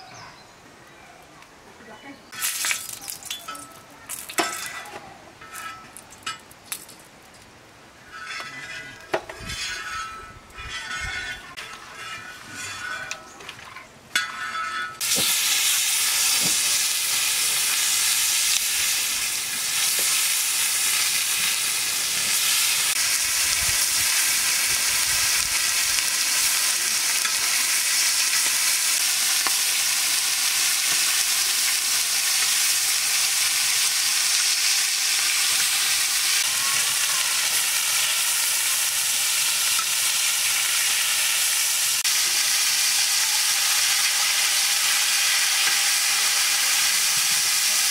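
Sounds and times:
fish frying in hot oil: 15.0 - 47.9.

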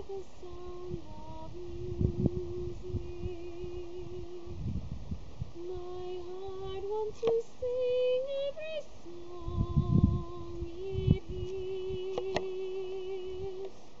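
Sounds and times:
woman singing unaccompanied: 0.0 - 4.8, 5.5 - 14.0
microphone rumbles: 0.8 - 7.1, 9.3 - 13.6.

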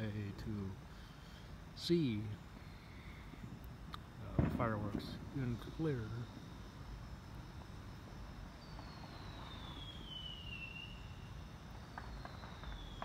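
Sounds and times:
steady low rumble: 0.0 - 13.0
whistling firework: 4.2 - 13.0.

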